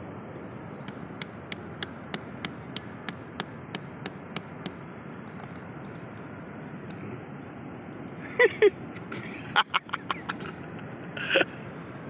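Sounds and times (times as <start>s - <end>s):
stone tapping on oyster shells: 0.9s - 4.8s.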